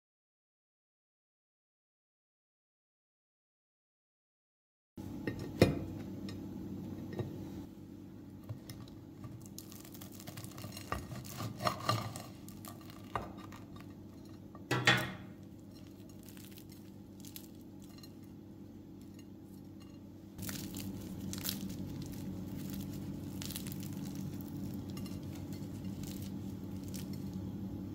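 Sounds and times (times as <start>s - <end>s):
steady low hum: 5.0s - 27.9s
pastry crackling as torn: 9.3s - 13.8s, 15.8s - 18.1s, 20.4s - 27.5s
pastries knocking on a ceramic plate: 14.7s - 15.4s.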